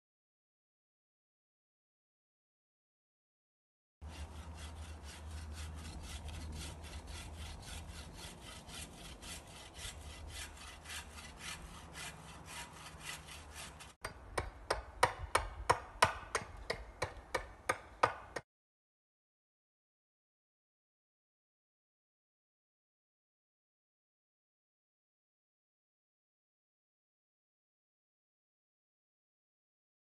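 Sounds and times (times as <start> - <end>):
bow saw cutting branch: 4.0 - 14.0
axe chopping wood: 14.0 - 18.4.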